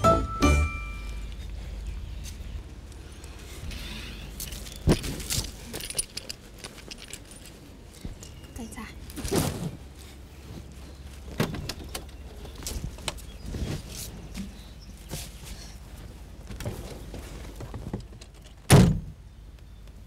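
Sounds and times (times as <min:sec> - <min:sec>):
car door shutting with heavy thump: 0:18.7 - 0:19.1.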